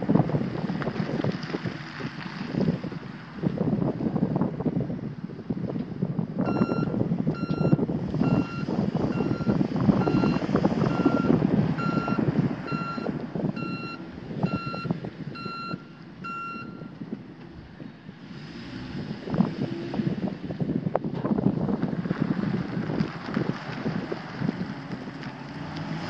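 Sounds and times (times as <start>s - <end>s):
truck backup alarm beeping: 6.4s - 17.0s.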